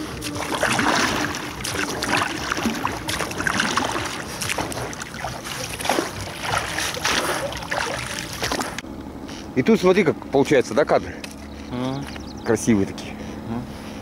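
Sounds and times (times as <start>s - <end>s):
water lapping around boat: 0.0s - 9.5s.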